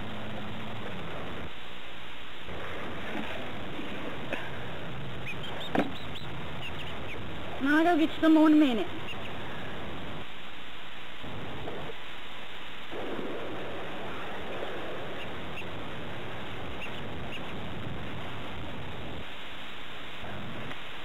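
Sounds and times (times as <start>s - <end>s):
steady rushing noise: 0.0s - 21.0s
faint high peeps: 5.2s - 7.3s, 8.9s - 9.4s, 14.0s - 15.9s, 16.6s - 17.7s.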